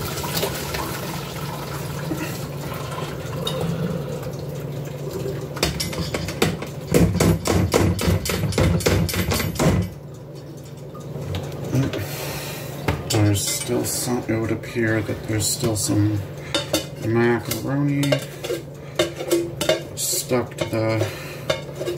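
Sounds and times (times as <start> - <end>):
water pouring into colander: 0.0 - 5.6.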